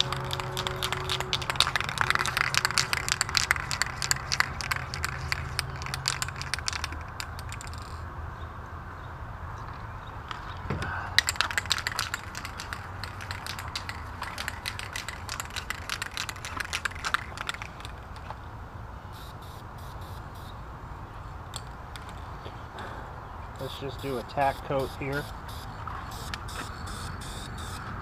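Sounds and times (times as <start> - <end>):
spray can ball rattling: 0.0 - 8.0, 11.1 - 18.3
low steady rumble: 0.0 - 8.1, 10.8 - 19.2.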